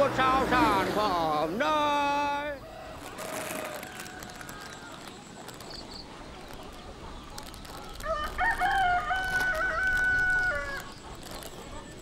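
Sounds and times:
rooster crowing: 8.0s - 10.9s.

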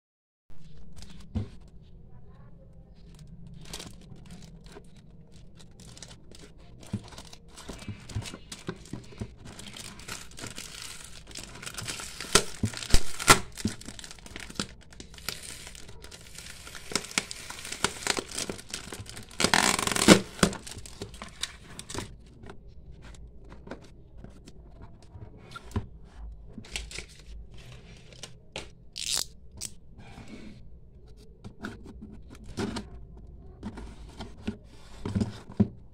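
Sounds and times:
plastic packaging crinkling: 3.0s - 22.2s, 29.0s - 29.7s
plastic tearing: 3.0s - 22.2s, 26.7s - 29.7s
blade slitting packing tape: 11.9s - 14.2s, 15.2s - 20.8s, 29.0s - 29.7s.

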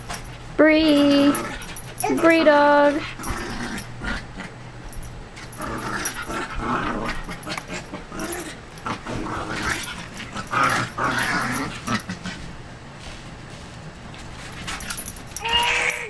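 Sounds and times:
small dogs growling and yipping: 1.1s - 12.6s.

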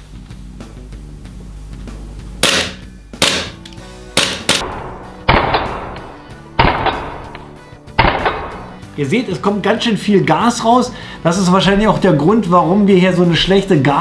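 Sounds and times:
airsoft pistol shots: 2.4s - 8.8s.

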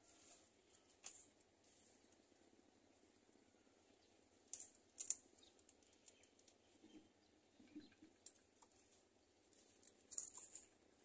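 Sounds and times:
faint short clicks and crackles: 4.5s - 6.8s.

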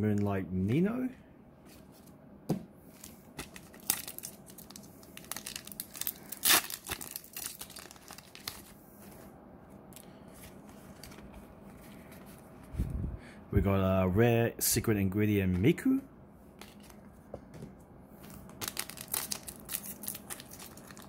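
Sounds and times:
foil wrapper crinkling: 3.0s - 8.8s, 18.5s - 21.0s
wrapper ripping: 3.0s - 8.8s, 18.6s - 21.0s
cards being handled: 10.0s - 12.7s, 16.6s - 17.6s.

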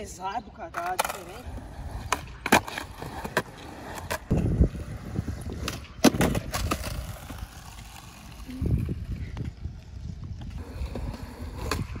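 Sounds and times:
skateboard clacking on concrete: 0.7s - 8.4s
skateboard wheels rumbling: 0.8s - 12.0s.

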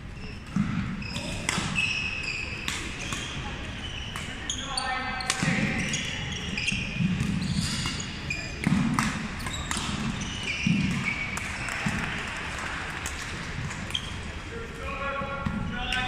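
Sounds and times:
sneakers squeaking on wooden floor: 0.2s - 12.1s, 13.8s - 14.3s
racket striking shuttlecock: 0.5s - 1.8s, 2.5s - 3.4s, 6.8s - 12.2s.

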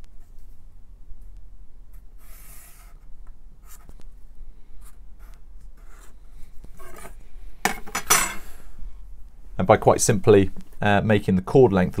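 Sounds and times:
marker scratching on paper: 2.2s - 4.0s, 4.8s - 6.2s.

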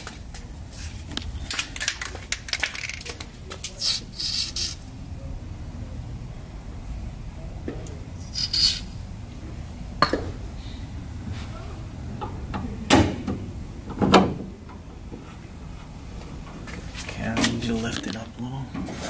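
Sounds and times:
aerosol spray hiss: 3.8s - 4.8s.

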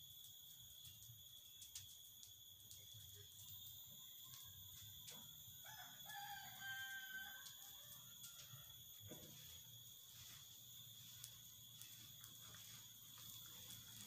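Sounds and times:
high insect buzz: 0.0s - 14.0s
faint rooster crow: 4.0s - 10.4s.

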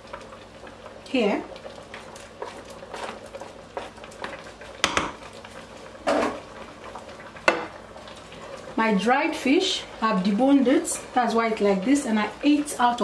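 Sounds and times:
wooden spatula knocking and scraping: 4.8s - 5.2s.

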